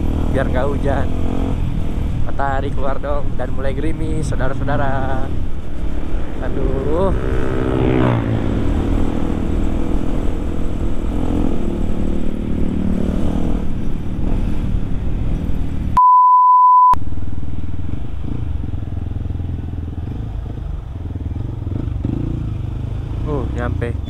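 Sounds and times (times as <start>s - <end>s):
motorcycle engine running: 0.0s - 16.0s, 17.0s - 24.0s
censor beep: 16.0s - 17.0s.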